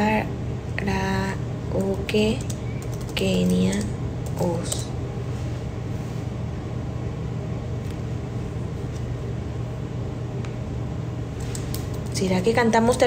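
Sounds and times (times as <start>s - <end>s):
low hum with hiss: 0.0s - 13.0s.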